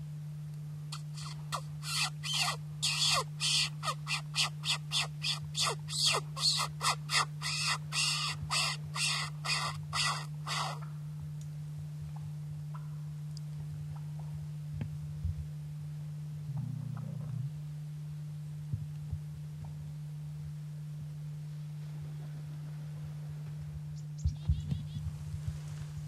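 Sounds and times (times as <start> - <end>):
low hum: 0.0 - 26.0
bird harsh calls: 0.9 - 10.9.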